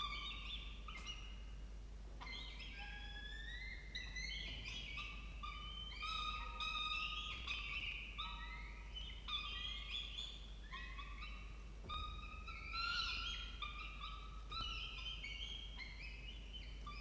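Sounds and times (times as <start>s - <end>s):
falcon chicks begging calls: 0.0s - 1.5s, 2.2s - 17.0s.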